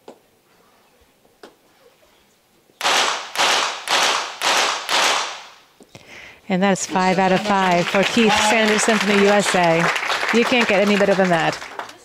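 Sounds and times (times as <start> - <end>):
pistol shots with echo: 2.8 - 5.6.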